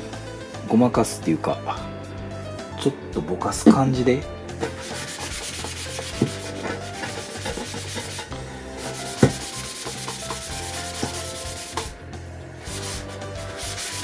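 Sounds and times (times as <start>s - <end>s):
cloth rubbing painted cover: 4.6s - 12.0s, 12.6s - 14.0s.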